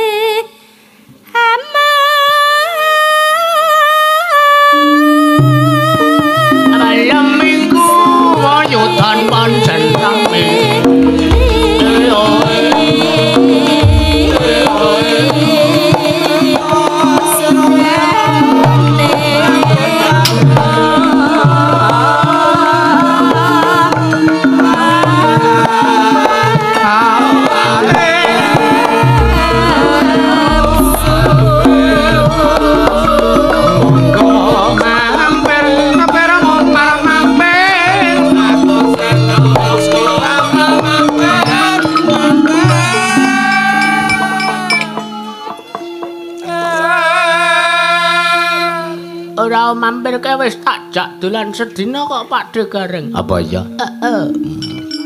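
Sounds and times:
woman singing with vibrato: 0:00.0 - 0:00.6, 0:01.2 - 0:45.8
hand drums rhythm: 0:05.4 - 0:46.2
gamelan ensemble playing: 0:10.8 - 0:15.8, 0:27.2 - 0:46.6, 0:53.3 - 0:55.0
deep low notes: 0:29.1 - 0:38.0.

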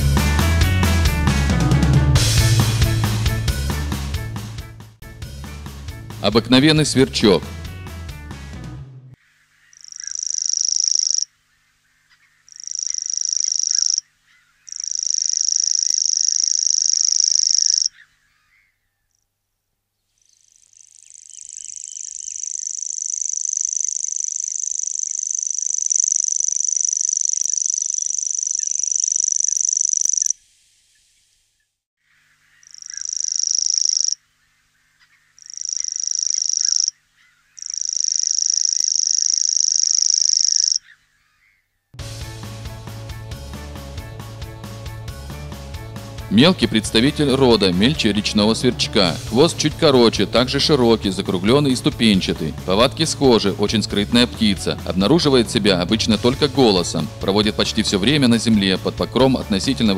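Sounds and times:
warbler high even reel: 0:09.8 - 0:11.3, 0:12.5 - 0:14.0, 0:14.7 - 0:18.0, 0:20.8 - 0:30.4, 0:37.6 - 0:40.8.

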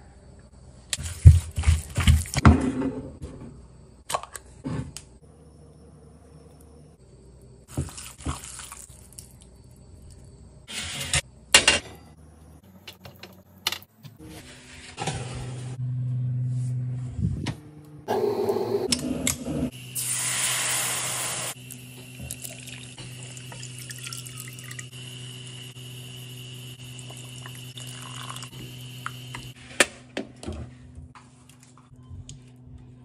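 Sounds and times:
liquid running and pouring: 0:22.3 - 0:25.6, 0:26.9 - 0:28.8.

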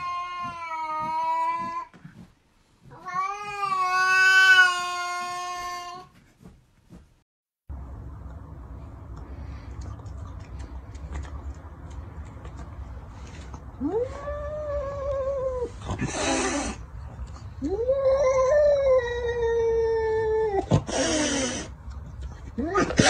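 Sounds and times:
cat hissing: 0:15.7 - 0:16.8.

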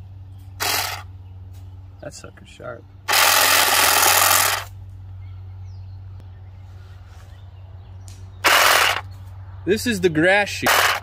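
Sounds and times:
hedge trimmer blades running: 0:00.5 - 0:01.1, 0:03.0 - 0:04.8, 0:08.4 - 0:09.1, 0:10.5 - 0:11.0.

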